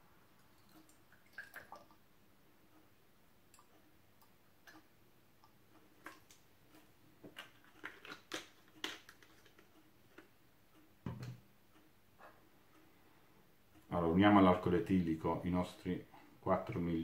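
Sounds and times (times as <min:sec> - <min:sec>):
bottle knocking on table: 0:11.0 - 0:11.4.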